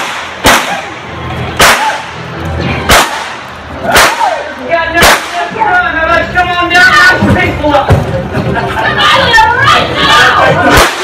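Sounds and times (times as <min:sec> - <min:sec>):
gunshots with echo: 0:00.0 - 0:00.9, 0:01.6 - 0:02.1, 0:02.9 - 0:03.4, 0:05.0 - 0:05.5.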